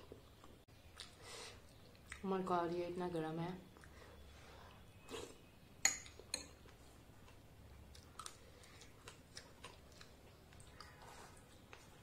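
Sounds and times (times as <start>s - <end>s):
spoon clinking on glass bowl: 5.8s - 6.5s.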